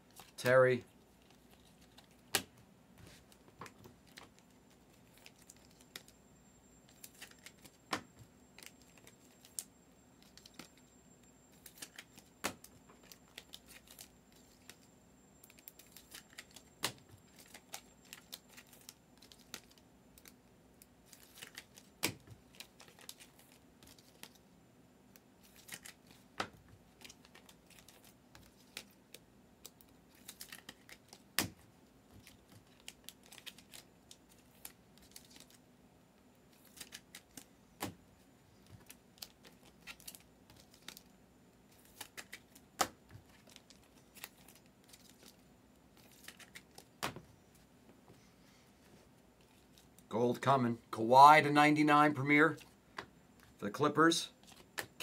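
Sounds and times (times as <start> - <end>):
trading cards handled: 1.1 - 6.2, 6.9 - 10.8, 11.5 - 14.9, 15.5 - 20.4, 21.1 - 24.4, 25.4 - 35.6, 36.5 - 38.0, 38.6 - 41.1, 41.7 - 47.2.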